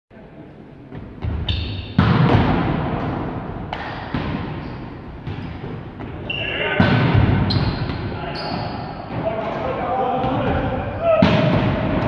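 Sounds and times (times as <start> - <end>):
volleyball slamming on floor: 1.2 - 4.6, 6.8 - 8.0, 11.2 - 12.0
shoe squeak: 1.4 - 2.0, 4.6 - 5.6, 6.2 - 6.8, 7.4 - 9.0.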